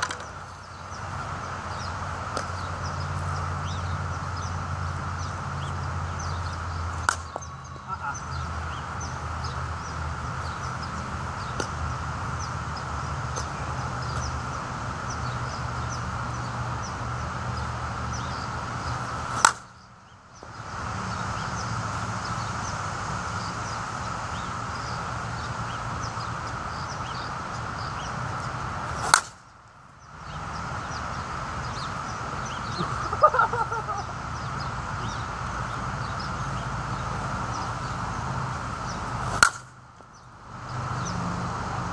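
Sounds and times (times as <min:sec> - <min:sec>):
outdoor hiss: 0:00.0 - 0:41.9
bat striking softball: 0:02.3 - 0:02.6, 0:07.0 - 0:07.5, 0:19.3 - 0:19.7, 0:29.0 - 0:29.4, 0:39.2 - 0:39.8.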